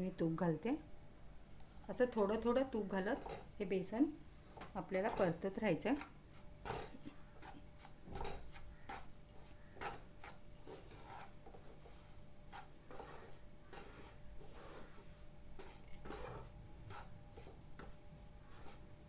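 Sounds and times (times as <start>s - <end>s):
spatula scraping in a pan: 4.8s - 19.0s.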